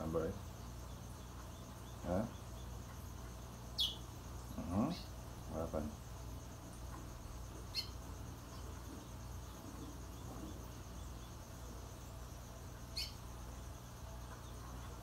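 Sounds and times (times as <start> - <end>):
steady low hum: 0.0 - 15.0
bird high chirps: 3.7 - 4.1, 7.7 - 8.6, 12.9 - 13.2.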